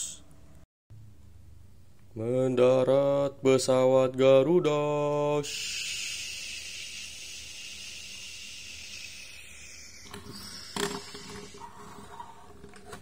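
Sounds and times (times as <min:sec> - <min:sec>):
jet-like hiss: 0:05.4 - 0:11.7.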